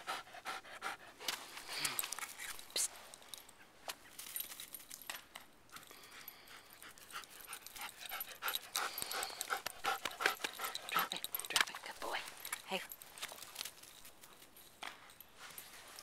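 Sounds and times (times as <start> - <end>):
dog panting: 0.0 - 1.4, 6.1 - 11.9.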